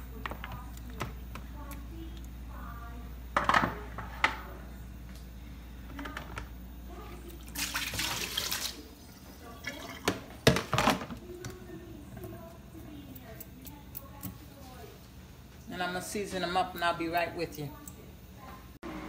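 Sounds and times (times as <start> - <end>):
liquid splashing into sink: 7.5 - 10.9.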